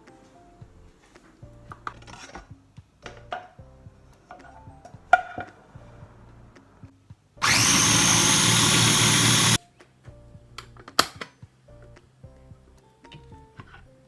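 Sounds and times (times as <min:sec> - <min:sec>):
food processor motor running: 0:07.4 - 0:09.6.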